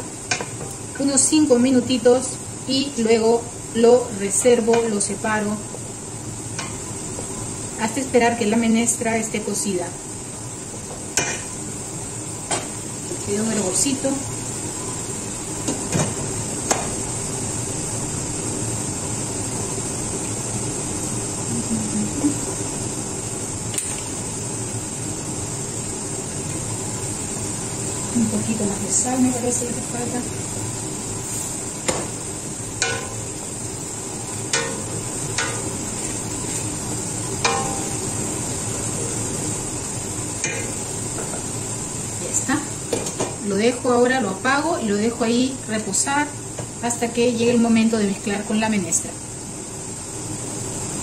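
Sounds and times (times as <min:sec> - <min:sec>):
pot boiling with steady hiss: 0:00.0 - 0:51.0
spoon knocking against pot: 0:32.8 - 0:33.2, 0:37.4 - 0:38.0.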